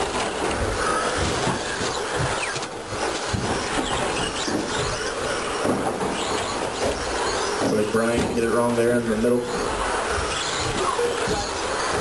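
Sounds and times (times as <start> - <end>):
rc truck motors whining: 0.0 - 8.0, 9.0 - 12.0
tyre noise: 0.0 - 12.0.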